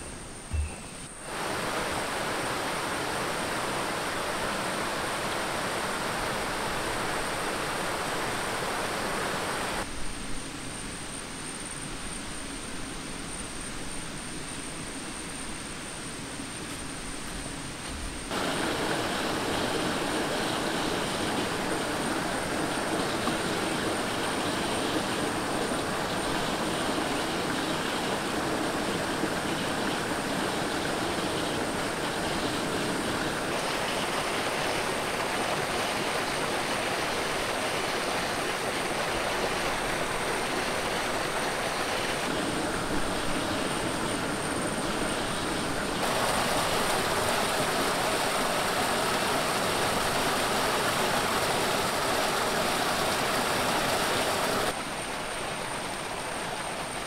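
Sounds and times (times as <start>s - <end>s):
stream water splashing over rocks: 1.2s - 9.9s, 18.3s - 57.0s
water gushing from a pipe: 18.3s - 54.8s.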